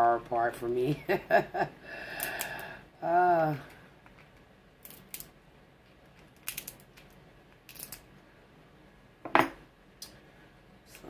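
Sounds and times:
shellfish shell cracking: 0:04.0 - 0:05.3, 0:06.1 - 0:08.1.

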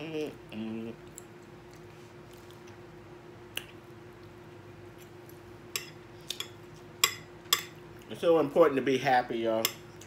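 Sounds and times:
steady low hum: 0:00.0 - 0:10.0
faint chewing: 0:00.9 - 0:02.9.

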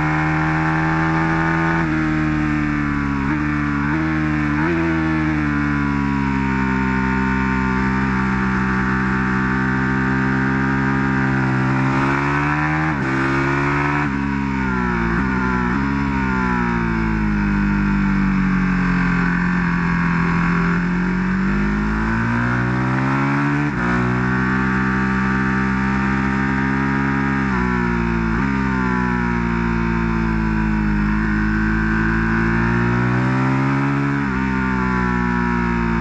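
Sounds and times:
motorcycle engine revving: 0:00.0 - 0:36.0.

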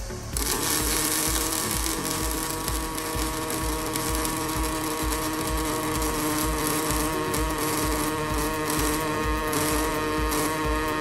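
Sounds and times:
welding arc buzzing: 0:00.0 - 0:11.0.

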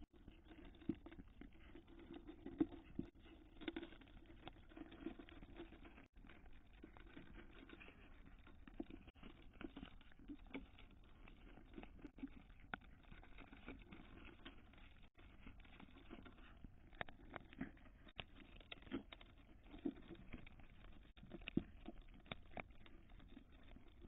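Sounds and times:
kittens crunching dry kibble: 0:00.0 - 0:24.0.

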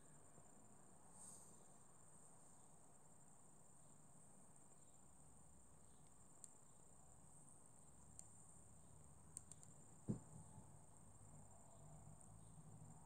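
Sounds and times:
faint high-pitched hiss: 0:00.0 - 0:13.0
tiny clicks: 0:06.0 - 0:06.6, 0:08.0 - 0:08.4, 0:09.3 - 0:09.9.

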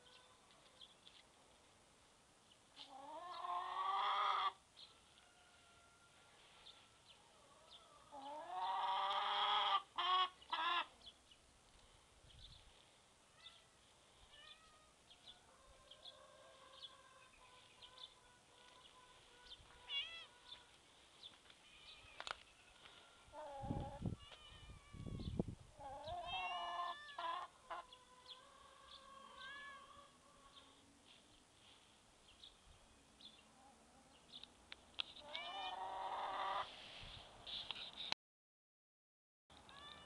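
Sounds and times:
soft hen chirps: 0:02.8 - 0:11.2, 0:14.3 - 0:30.9, 0:35.2 - 0:38.1
hen calling: 0:16.0 - 0:20.8, 0:21.6 - 0:30.8, 0:35.2 - 0:36.8.

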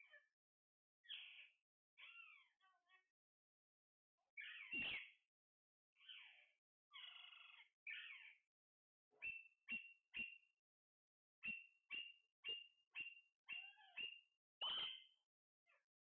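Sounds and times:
parakeets screeching: 0:02.0 - 0:02.5, 0:04.4 - 0:05.0, 0:07.0 - 0:08.3, 0:11.9 - 0:15.1.

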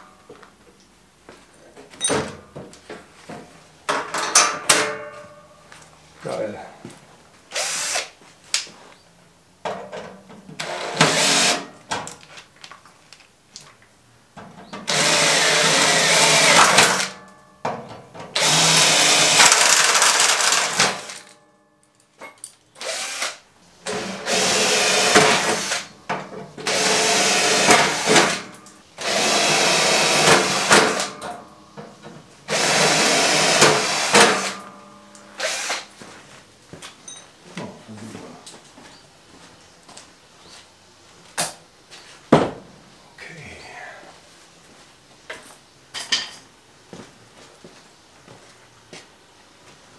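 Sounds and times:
cordless drill drilling into metal: 0:07.5 - 0:08.1, 0:10.6 - 0:11.7, 0:14.9 - 0:17.1, 0:18.4 - 0:21.2, 0:22.8 - 0:25.9, 0:26.7 - 0:28.4, 0:29.0 - 0:31.1, 0:32.5 - 0:34.6, 0:35.4 - 0:35.9.

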